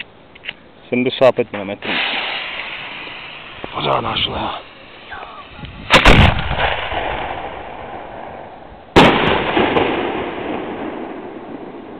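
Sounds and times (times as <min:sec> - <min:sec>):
firework mortar bang: 0:01.8 - 0:03.8, 0:05.8 - 0:11.9
firework shell bursting: 0:01.8 - 0:11.9.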